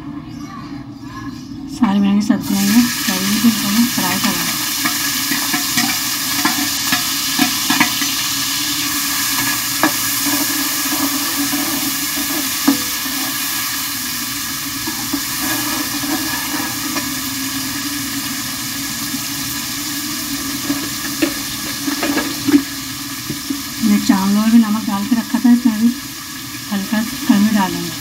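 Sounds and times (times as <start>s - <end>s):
vegetables sizzling in hot oil: 2.4s - 28.0s
metal spatula scraping a pan: 4.2s - 13.6s, 14.8s - 17.3s.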